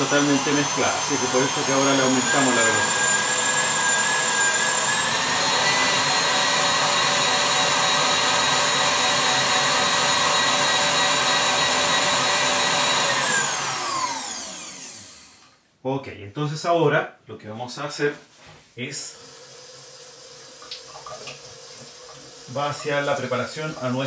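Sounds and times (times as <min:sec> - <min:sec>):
stand mixer motor whining: 0:00.0 - 0:15.4.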